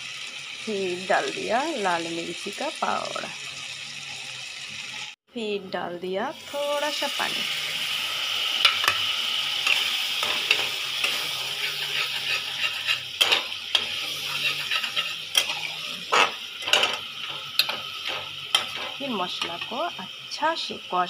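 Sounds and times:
masala sizzling in oil: 0:00.0 - 0:05.2, 0:05.9 - 0:21.0
metal spatula scraping pan: 0:07.9 - 0:19.8.

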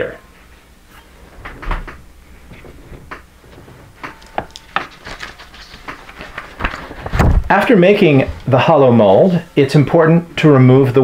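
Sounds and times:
rubbing: 0:00.8 - 0:08.6.

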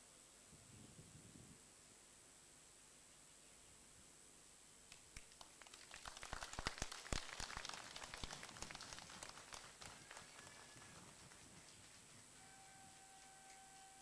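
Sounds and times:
faint scattered applause: 0:04.9 - 0:14.0.

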